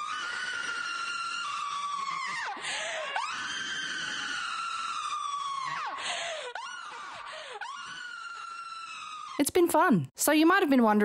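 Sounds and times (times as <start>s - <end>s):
harsh gasp: 5.6s - 7.8s.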